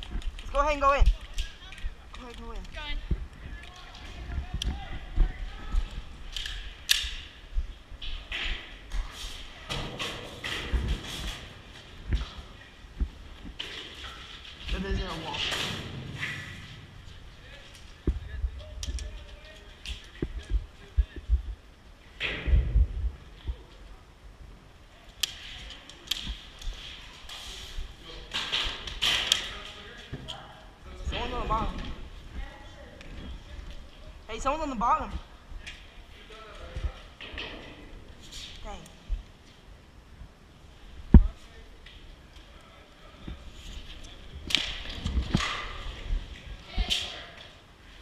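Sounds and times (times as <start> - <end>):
airsoft gun snaps: 6.4 - 7.2.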